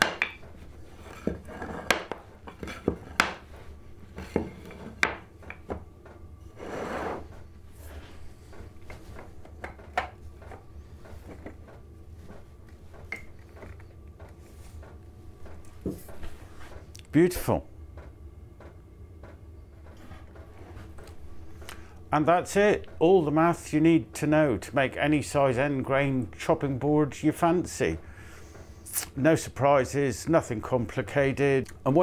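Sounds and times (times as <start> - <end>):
wooden blocks clacking: 0.0 - 3.5, 4.2 - 5.8, 8.8 - 14.3
wood scraping slide: 0.8 - 3.2, 6.4 - 9.3.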